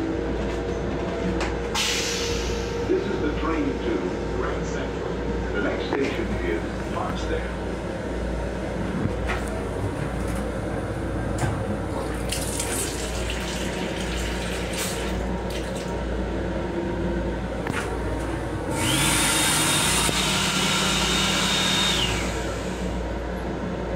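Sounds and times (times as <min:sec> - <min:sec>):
train rumble: 0:00.0 - 0:19.1
faucet running into sink: 0:12.2 - 0:15.9
hand dryer blower whooshing: 0:18.7 - 0:22.9.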